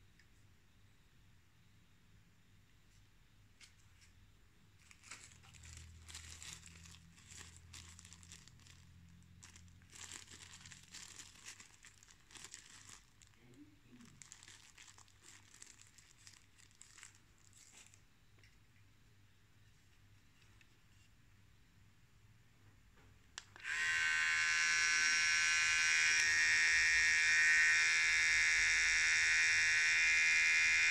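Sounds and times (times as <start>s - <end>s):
soft handling rustles: 2.9s - 18.9s.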